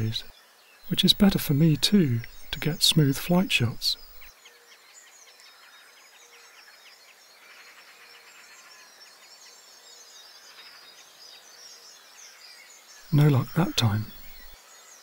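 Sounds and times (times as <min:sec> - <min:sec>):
distant birds chirping: 0:00.0 - 0:04.8, 0:11.4 - 0:15.0.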